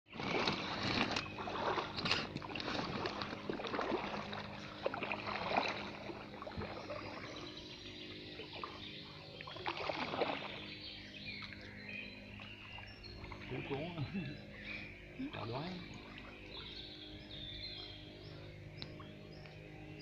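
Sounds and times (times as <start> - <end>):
paddle splashing in water: 0.1 - 7.5, 8.4 - 10.8
water trickling: 0.1 - 20.0.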